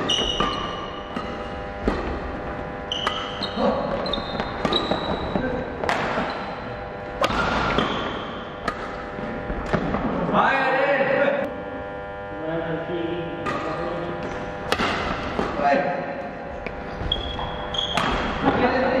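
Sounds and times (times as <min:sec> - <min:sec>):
shoe squeaks: 0:00.0 - 0:01.5, 0:02.8 - 0:05.6, 0:06.2 - 0:06.6, 0:16.9 - 0:18.5
rackets smacking shuttlecock: 0:00.0 - 0:05.2, 0:05.8 - 0:10.0, 0:13.4 - 0:15.7, 0:16.6 - 0:18.6.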